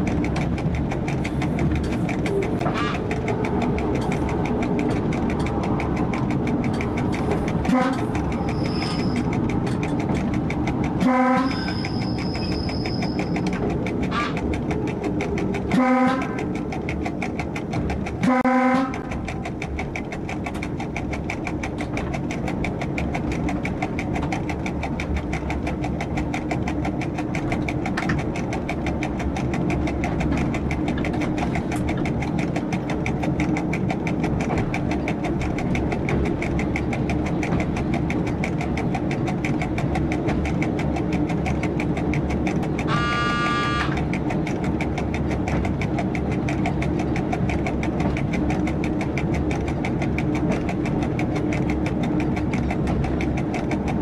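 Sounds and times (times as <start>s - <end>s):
train engine and wheels on rails: 0.0s - 54.0s
train horn blasts: 7.7s - 8.0s, 11.0s - 11.7s, 15.7s - 16.4s, 18.2s - 19.0s, 42.9s - 44.0s.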